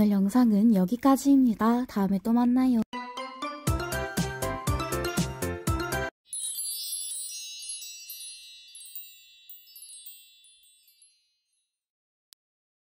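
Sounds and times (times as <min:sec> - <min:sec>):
background music: 0:02.9 - 0:06.1
shimmering high chimes: 0:03.0 - 0:11.8.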